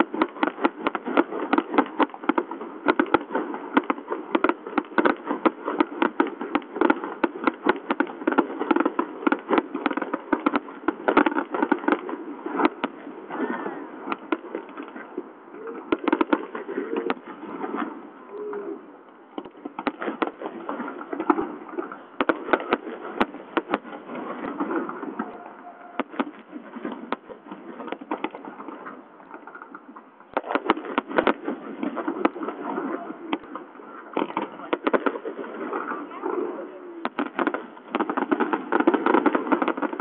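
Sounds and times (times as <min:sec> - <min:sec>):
fireworks bursting and crackling: 0:00.0 - 0:40.0.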